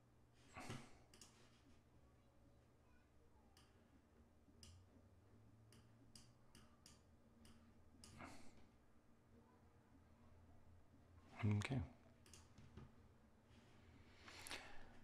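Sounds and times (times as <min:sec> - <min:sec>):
computer mouse clicks: 0:01.1 - 0:01.4.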